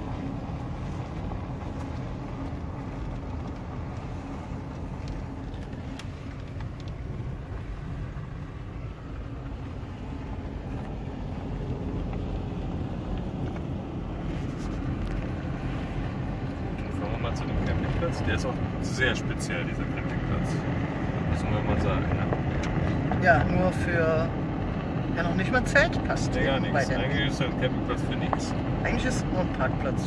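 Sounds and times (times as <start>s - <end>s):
car engine and tyre rumble: 0.0s - 30.0s.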